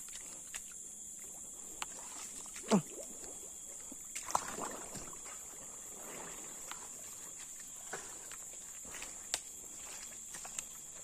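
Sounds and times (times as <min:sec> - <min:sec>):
steady high whine: 0:00.0 - 0:11.0
footsteps crunching on leaves: 0:07.3 - 0:11.0.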